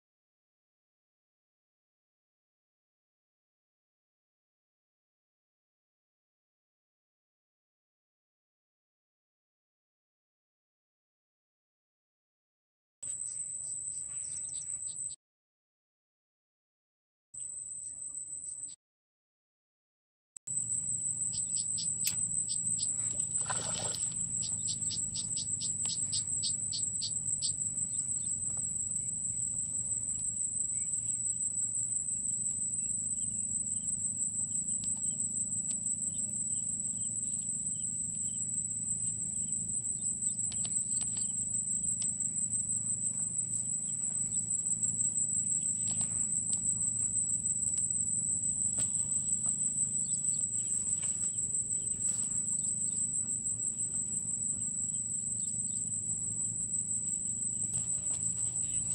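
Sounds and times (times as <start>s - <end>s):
insects trilling: 13.1s - 15.2s, 20.5s - 58.9s
low steady hum: 20.6s - 58.9s.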